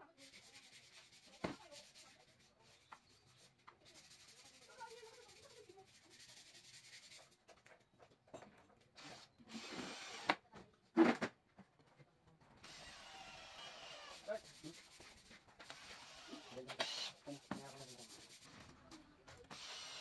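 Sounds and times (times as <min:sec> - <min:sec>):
hands rubbing wooden strip: 0:00.2 - 0:07.4, 0:14.1 - 0:19.0
drill running into wood: 0:09.0 - 0:10.4, 0:12.6 - 0:14.3, 0:15.6 - 0:17.2, 0:19.5 - 0:20.0.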